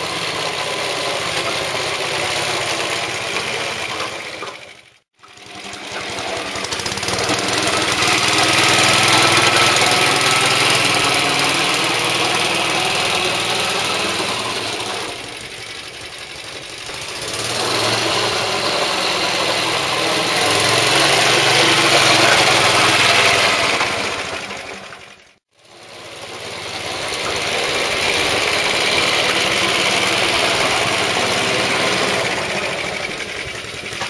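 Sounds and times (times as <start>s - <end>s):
lawnmower engine running: 0.0s - 34.0s.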